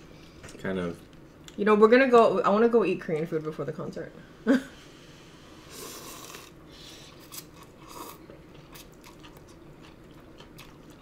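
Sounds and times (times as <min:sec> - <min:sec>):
noodle slurping: 0:05.7 - 0:06.6
quiet chewing: 0:07.2 - 0:11.0.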